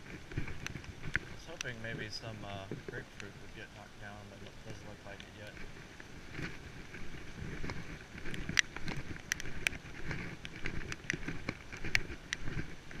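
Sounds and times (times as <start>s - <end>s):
rain downpour: 0.0s - 13.0s
raindrops ticking near microphone: 0.0s - 13.0s.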